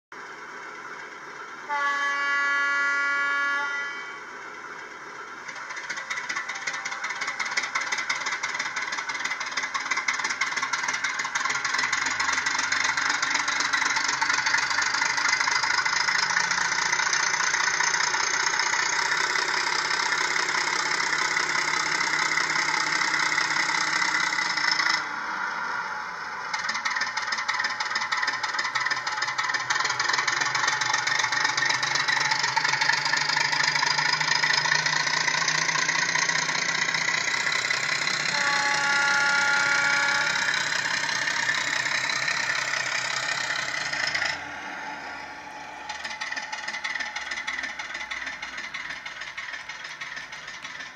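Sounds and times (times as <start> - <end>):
model locomotive horn blast: 1.6 - 4.4, 37.6 - 43.0
diesel engine sound revving: 9.7 - 50.9.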